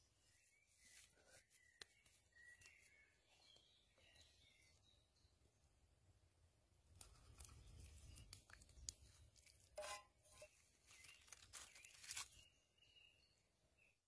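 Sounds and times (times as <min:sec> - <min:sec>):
food rustling in wooden bowl: 0:07.0 - 0:12.5.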